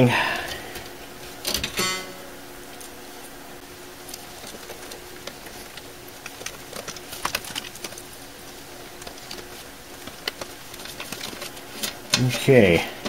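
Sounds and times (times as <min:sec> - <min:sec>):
cables and connectors rustling: 0:02.7 - 0:13.0.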